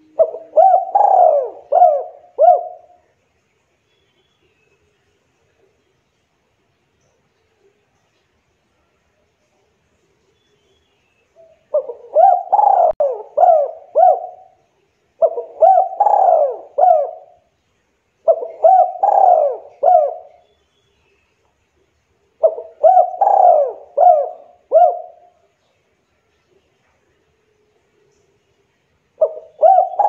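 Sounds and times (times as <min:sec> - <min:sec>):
dove cooing: 0:00.0 - 0:03.1, 0:11.4 - 0:14.6, 0:15.2 - 0:17.5, 0:18.2 - 0:20.4, 0:22.4 - 0:25.5, 0:29.2 - 0:30.0.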